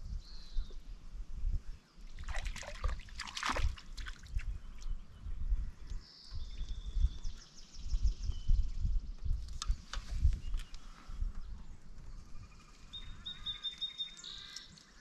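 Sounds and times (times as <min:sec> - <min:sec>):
wind rumble on microphone: 0:00.0 - 0:13.7
water splashing: 0:02.2 - 0:04.4.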